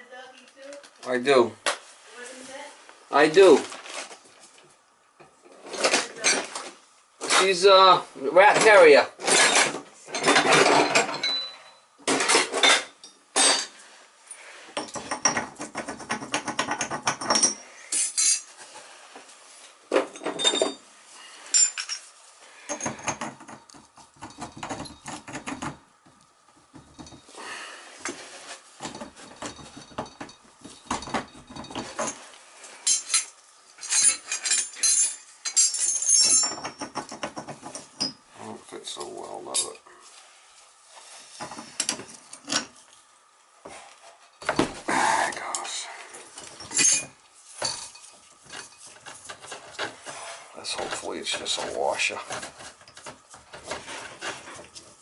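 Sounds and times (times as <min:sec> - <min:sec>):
metal tools clinking and scraping: 0:08.5 - 0:18.6, 0:19.9 - 0:23.5, 0:28.1 - 0:38.2, 0:38.9 - 0:39.8, 0:46.4 - 0:54.9.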